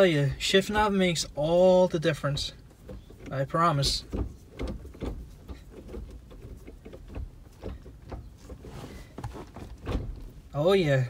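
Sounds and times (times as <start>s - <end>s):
gear lever clicking and knocking: 2.3s - 10.5s.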